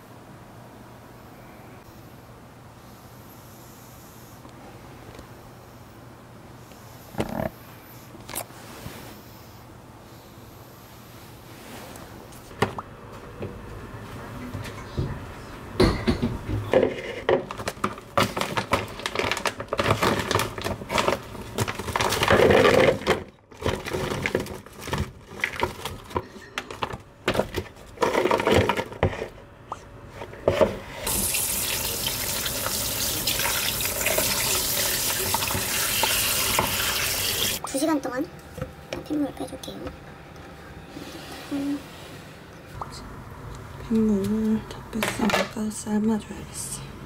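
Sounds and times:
kitchen knocks and clatter: 15.8 - 19.0
tap running into sink: 31.1 - 37.6.

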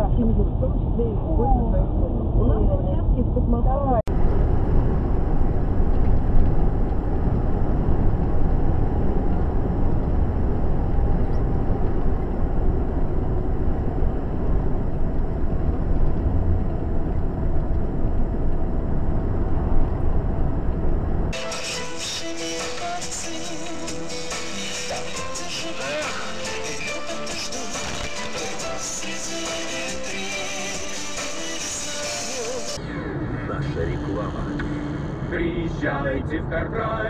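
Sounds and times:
car road and engine rumble: 0.0 - 37.0
music: 21.4 - 35.6.

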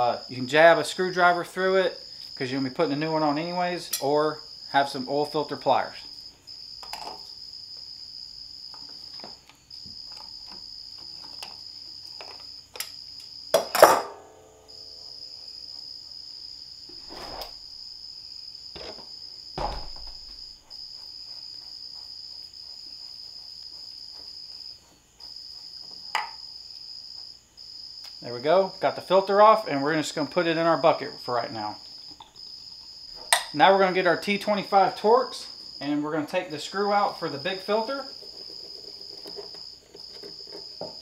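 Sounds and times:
cricket trilling: 0.0 - 13.8, 14.4 - 41.0
metal clanks and knocks: 19.6 - 20.6.

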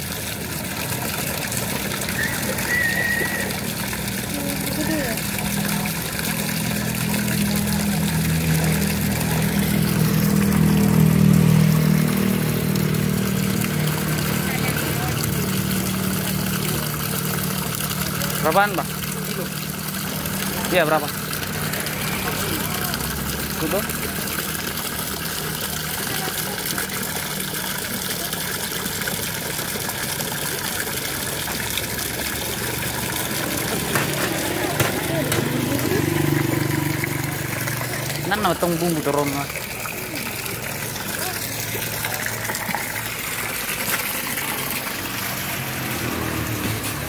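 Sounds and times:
water churning in a tank: 0.0 - 47.0.

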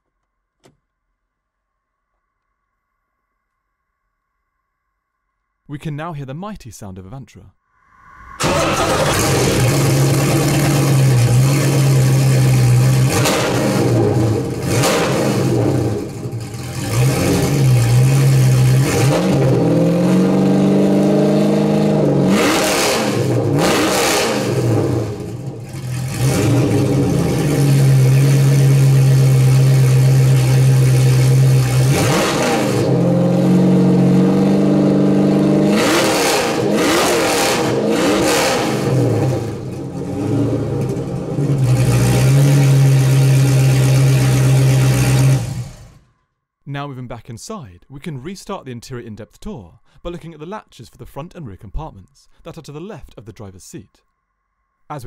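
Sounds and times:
car engine idling and revving: 8.1 - 46.1.

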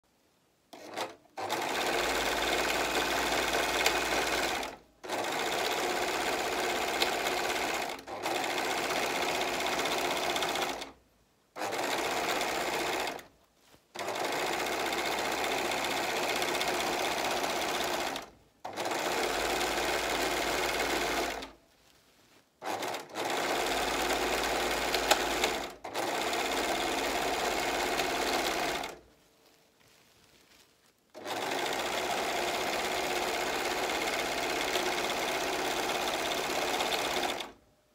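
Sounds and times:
overlock serger stitching: 0.7 - 11.0, 11.6 - 13.3, 13.9 - 21.6, 22.6 - 29.0, 31.1 - 37.6.

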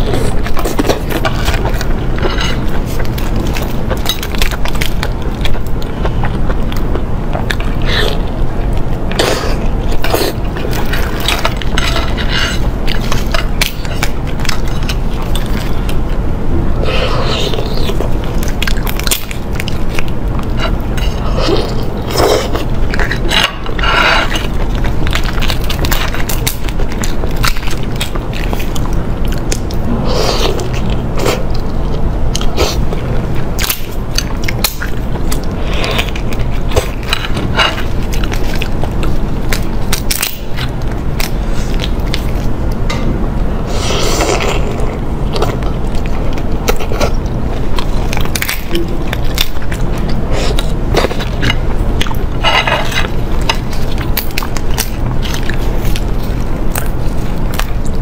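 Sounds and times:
chewing: 0.0 - 58.0.

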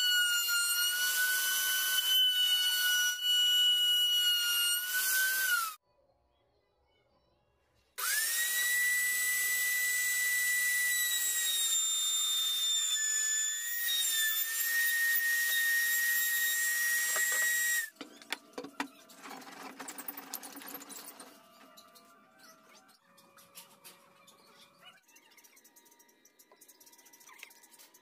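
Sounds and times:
power tool whining: 0.0 - 5.8, 8.0 - 18.0.

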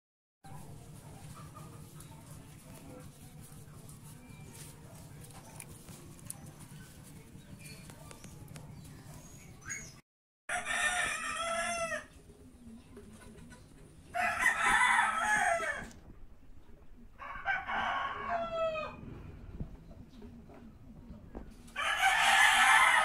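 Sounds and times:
rooster crowing: 10.5 - 12.1, 14.1 - 16.0, 17.2 - 19.0, 21.8 - 23.0.

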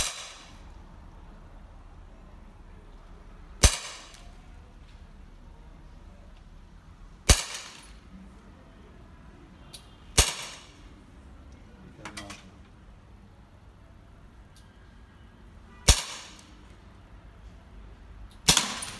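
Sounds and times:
air pistol shots: 0.0 - 0.6, 3.6 - 4.2, 7.2 - 7.9, 10.1 - 10.8, 15.8 - 16.5, 18.4 - 18.9.

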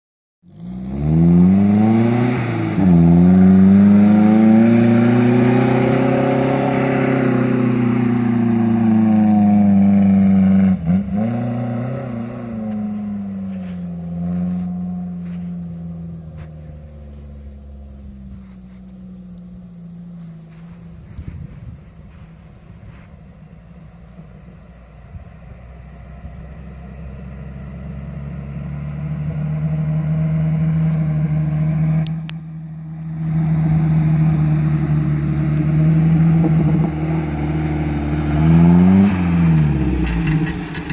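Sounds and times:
engine revving hard: 0.5 - 15.4, 33.2 - 40.9.

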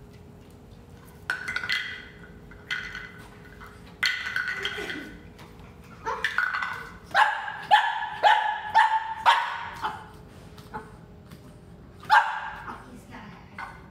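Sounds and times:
puppy barking: 7.1 - 10.1, 12.0 - 12.8.

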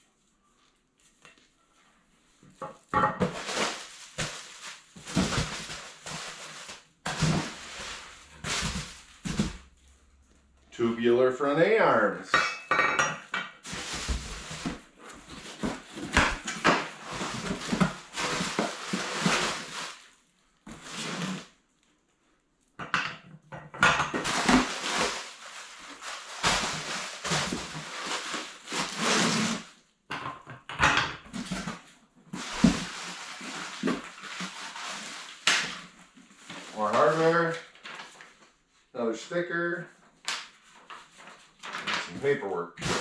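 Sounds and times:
cardboard and plastic rustling: 0.6 - 10.5, 13.6 - 22.0, 24.1 - 29.8, 31.3 - 38.7, 40.1 - 43.0.

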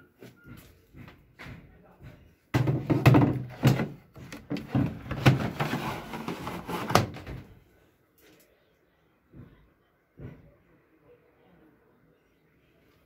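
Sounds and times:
knocks: 1.0 - 5.5
plastic tank clattering and scraping: 2.5 - 7.6.

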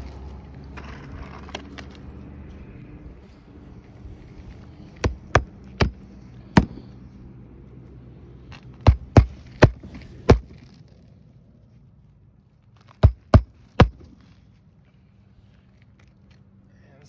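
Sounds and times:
hammer driving nails into shingles: 5.0 - 6.8, 8.8 - 10.5, 12.9 - 14.2.

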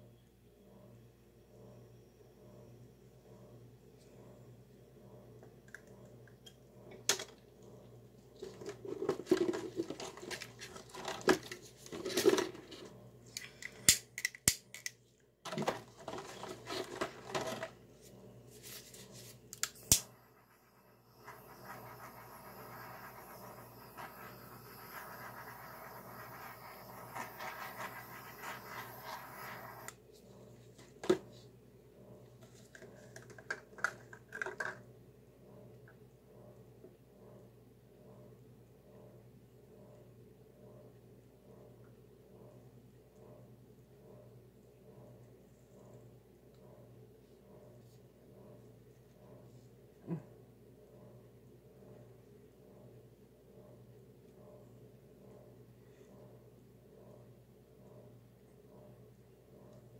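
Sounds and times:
steady hiss: 18.8 - 30.0.

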